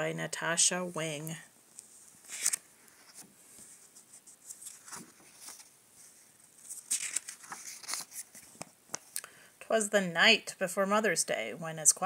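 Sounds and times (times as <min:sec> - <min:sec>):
book pages rustling: 0:01.8 - 0:09.2.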